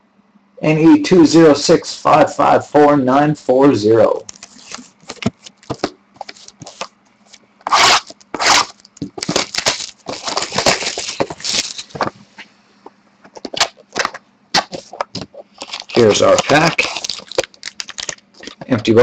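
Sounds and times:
cellophane wrap crinkling: 4.2s - 6.9s, 7.6s - 12.1s, 13.4s - 18.8s.

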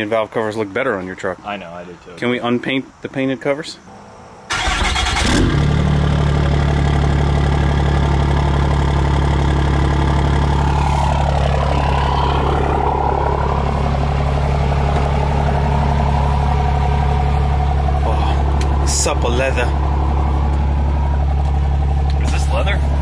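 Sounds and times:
high engine whine: 3.9s - 23.0s
truck engine idling: 4.0s - 23.0s.

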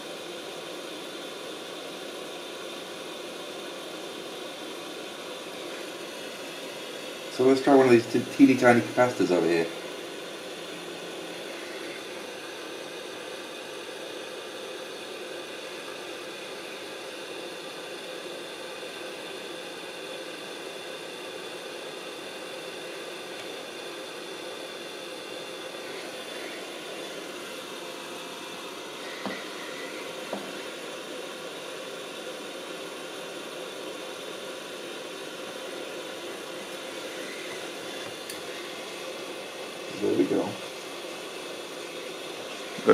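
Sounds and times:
hot air gun blowing: 25.9s - 31.1s.

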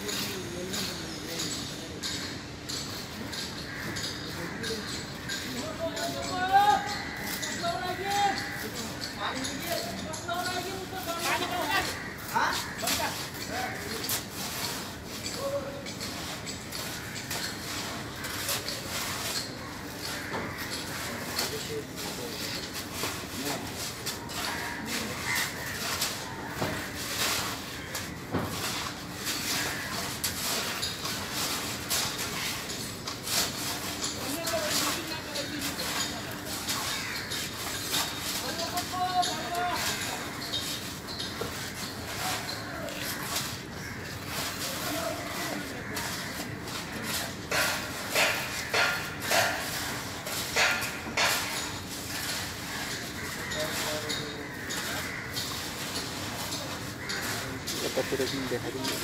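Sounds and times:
tools scraping wet cement: 0.0s - 59.0s.

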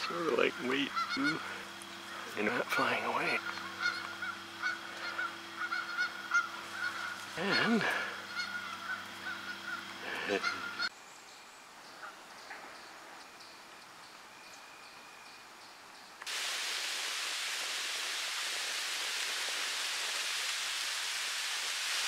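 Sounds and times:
geese honking: 0.0s - 10.9s
low steady hum: 0.0s - 16.2s
steady rushing hiss: 0.0s - 22.0s.

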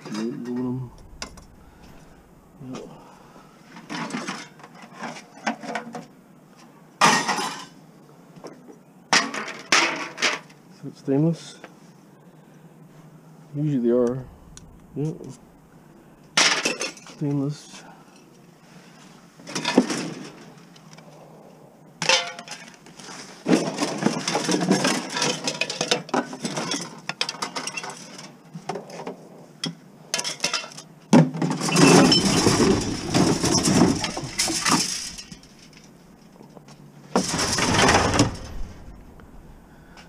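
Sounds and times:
scrap metal clattering: 31.4s - 36.0s, 37.1s - 39.2s
bottles clinking: 31.6s - 35.6s.

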